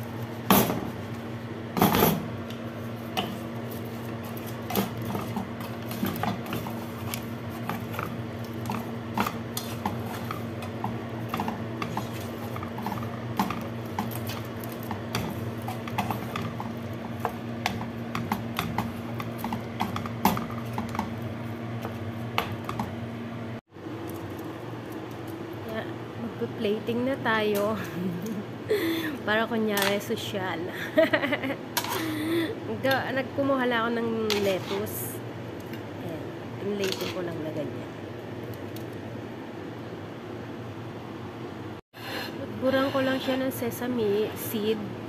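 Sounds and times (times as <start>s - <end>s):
steady low hum: 0.0s - 45.0s
wooden spatula scraping frying pan: 3.1s - 21.0s, 34.3s - 35.0s.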